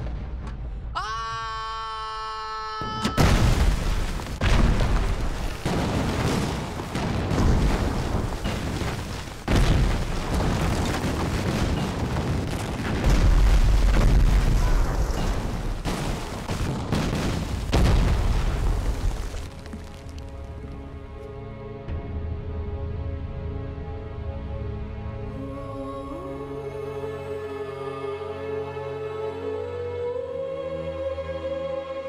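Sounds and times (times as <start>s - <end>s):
deep rumbling and debris: 0.0s - 1.6s, 2.9s - 21.3s
heavy explosions: 3.2s - 20.2s.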